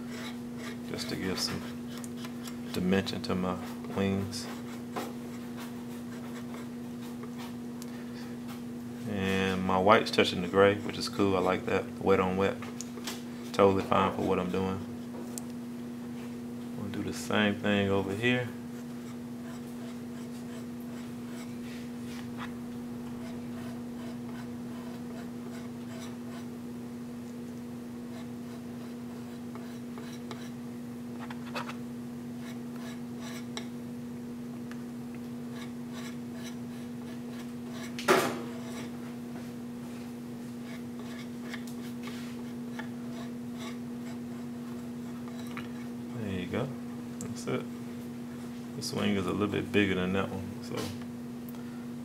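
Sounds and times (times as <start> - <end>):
palette knife scraping paint: 0.0 - 7.6, 18.7 - 22.5, 23.1 - 26.5, 28.1 - 30.6, 35.5 - 39.0, 40.6 - 46.0
steady low hum: 0.0 - 52.0.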